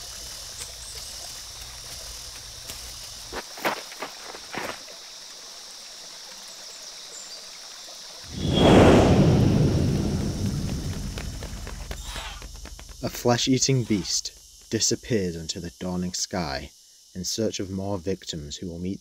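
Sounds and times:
night insects chirring: 0:00.0 - 0:19.0
loud rumble: 0:08.3 - 0:11.9.

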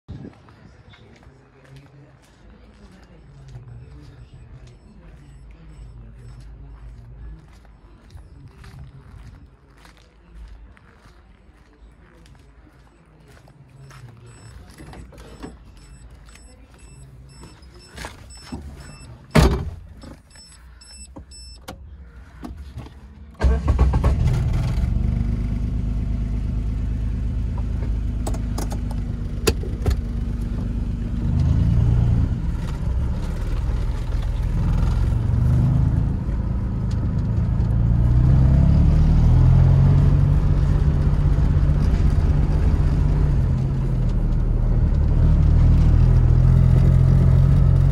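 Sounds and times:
faint repeated beeping: 0:02.5 - 0:08.6, 0:11.8 - 0:22.2
car engine starting and idling: 0:13.8 - 0:47.9.

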